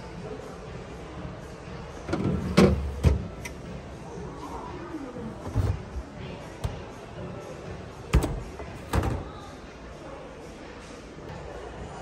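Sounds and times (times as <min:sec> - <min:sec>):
plastic drawers sliding: 0:05.4 - 0:06.0.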